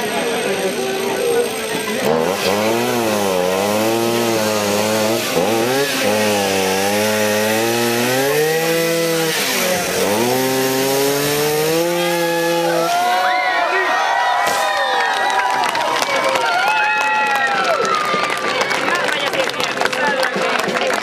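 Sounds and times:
chainsaw cutting wood: 0:00.0 - 0:13.4, 0:14.4 - 0:14.8.

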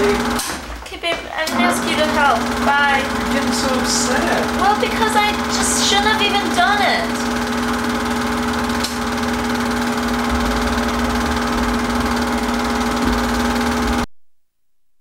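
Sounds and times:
film projector motor hum: 0:00.0 - 0:00.7, 0:01.4 - 0:14.1.

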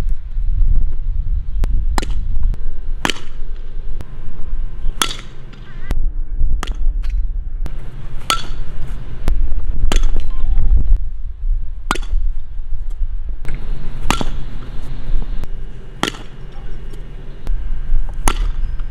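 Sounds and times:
low steady rumble: 0:00.0 - 0:18.9
bat hitting softballs: 0:01.9 - 0:02.3, 0:03.0 - 0:03.7, 0:04.9 - 0:05.7, 0:06.6 - 0:06.9, 0:07.9 - 0:09.0, 0:09.8 - 0:10.3, 0:11.8 - 0:12.4, 0:13.4 - 0:14.9, 0:15.9 - 0:16.7, 0:18.0 - 0:18.9.

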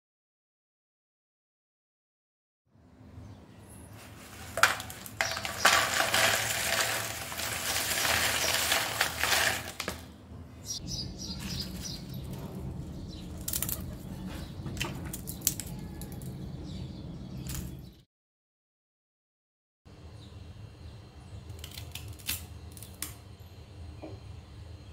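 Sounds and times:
hand picking through chips: 0:04.0 - 0:10.1
chips rattling into plastic bowl: 0:04.2 - 0:10.1.

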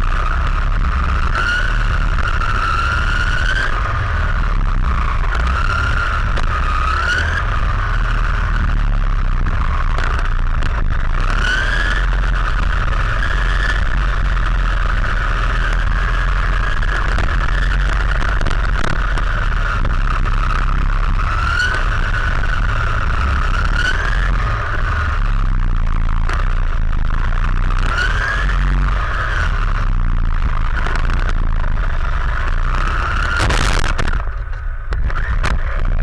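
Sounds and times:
low rumble of wheels on asphalt: 0:00.0 - 0:36.0
rc car motor whine: 0:00.0 - 0:36.0.

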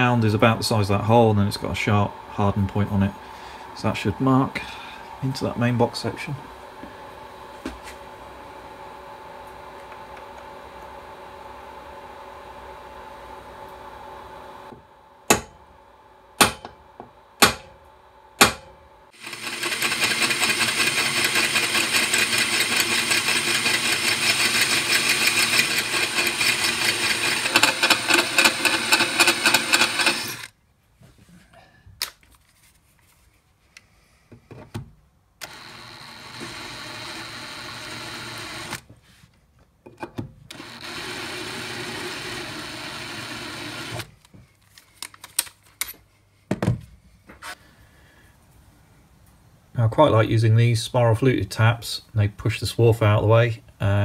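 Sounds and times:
hammer tapping metal punch: 0:15.3 - 0:15.6, 0:16.4 - 0:17.8, 0:18.4 - 0:18.8
cordless drill drilling into steel: 0:19.2 - 0:30.5, 0:35.4 - 0:38.8, 0:40.5 - 0:44.1.

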